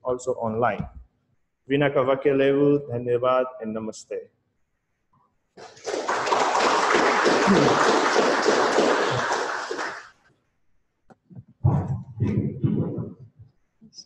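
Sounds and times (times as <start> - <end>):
audience applause: 5.6 - 10.2.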